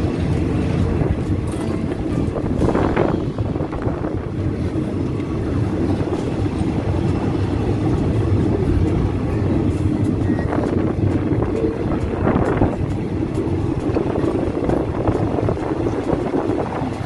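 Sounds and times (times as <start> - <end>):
train wheels rumbling on rails: 0.0 - 17.0
wind past open door: 0.0 - 17.0.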